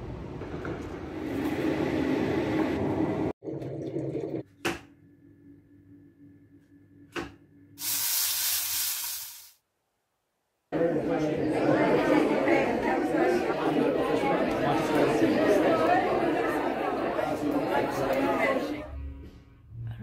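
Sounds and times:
city street rumble: 0.0 - 3.3
mushrooms sizzling in a frying pan: 7.8 - 9.6.

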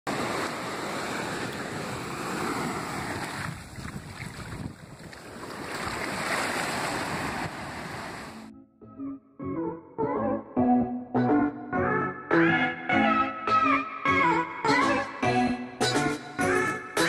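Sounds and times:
surf washing on beach: 0.1 - 8.5
wind buffeting microphone: 3.0 - 8.3.

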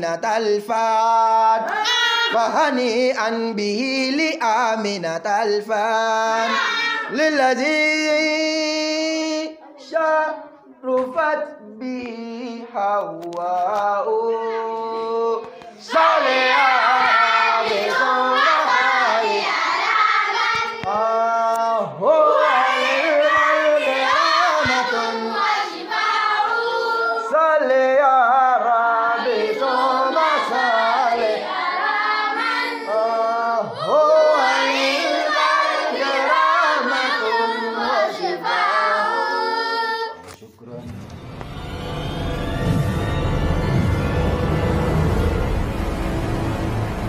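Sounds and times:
group chanting without instruments: 14.3 - 40.2.

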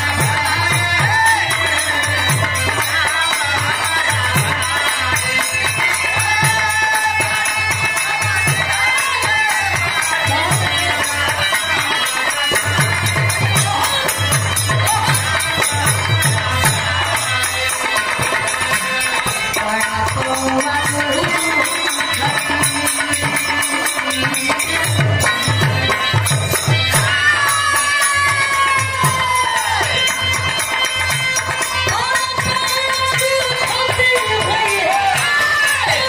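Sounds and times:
harmonium: 0.0 - 36.0
jingling percussion: 0.0 - 36.0
woman singing: 0.0 - 36.0.

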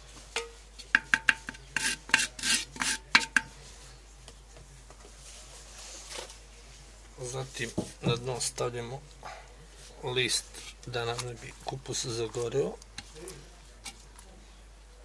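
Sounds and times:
scraping against earthenware pot: 1.0 - 3.5, 10.3 - 10.9.

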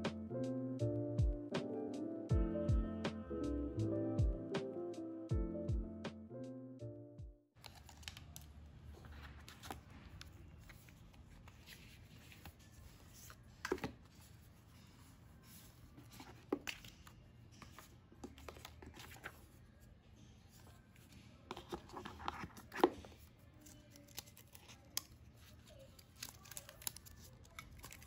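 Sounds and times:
paper and cardboard rustling: 7.6 - 19.9, 20.5 - 28.0.

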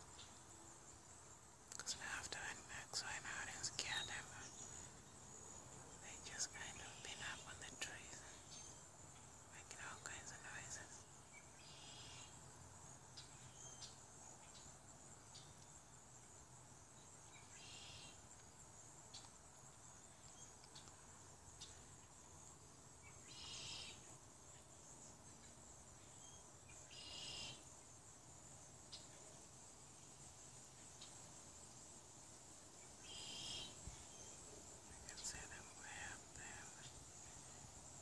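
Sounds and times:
insects high-pitched drone: 0.0 - 38.0
short buzzy insect chirps: 33.0 - 34.3.

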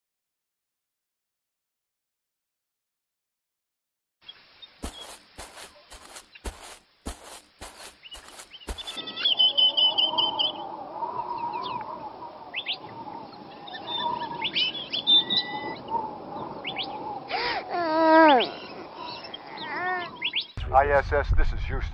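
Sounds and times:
birds chirping: 4.3 - 20.6
footsteps: 4.8 - 9.0.

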